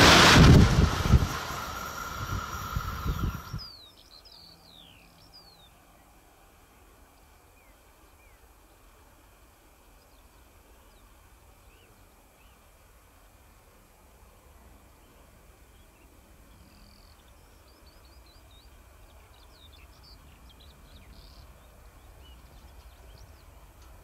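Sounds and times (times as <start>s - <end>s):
electric locomotive running: 0.0s - 3.7s
birds chirping: 1.8s - 6.1s, 15.0s - 23.9s.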